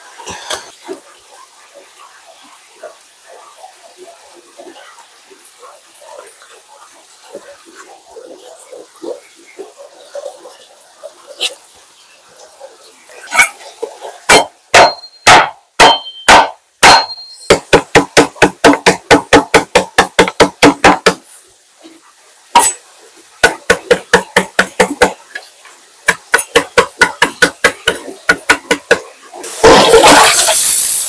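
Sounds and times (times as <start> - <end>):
knife chopping on cutting board: 14.3 - 21.2.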